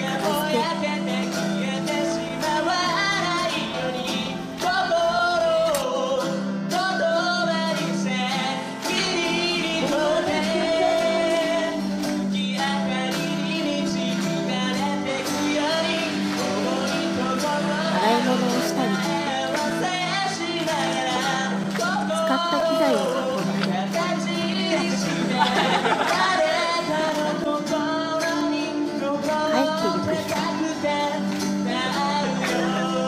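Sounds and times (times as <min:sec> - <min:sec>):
song with singing voice: 0:00.0 - 0:33.0.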